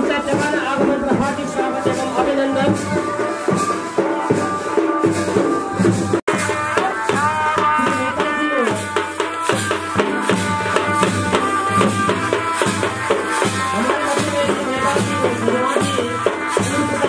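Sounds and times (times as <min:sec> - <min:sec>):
dhol drum beating: 0:00.0 - 0:17.0
rattling percussion: 0:00.0 - 0:17.0.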